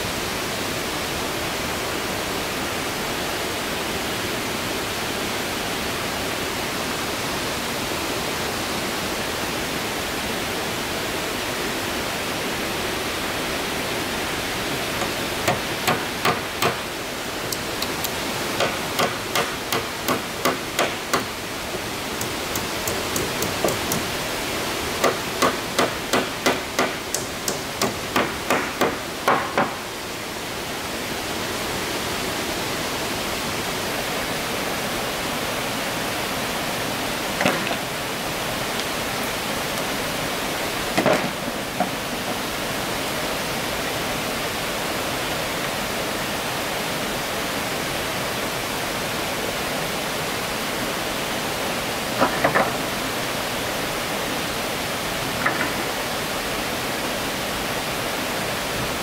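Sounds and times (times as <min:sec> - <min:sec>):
steady rushing hiss: 0:00.0 - 0:59.0
hammer driving nails into wood: 0:15.0 - 0:16.8, 0:17.5 - 0:21.3, 0:22.2 - 0:24.1, 0:25.0 - 0:29.8.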